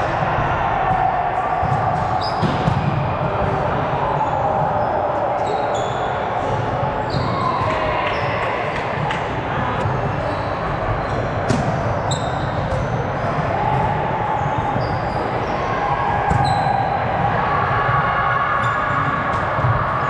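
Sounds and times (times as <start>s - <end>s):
gym hall din: 0.0s - 20.0s
volleyball hits: 0.1s - 4.7s, 11.4s - 15.0s
sneakers squeaking on floor: 1.6s - 3.0s, 4.2s - 6.4s, 7.0s - 8.4s, 9.8s - 13.3s, 14.4s - 16.9s, 18.6s - 19.7s.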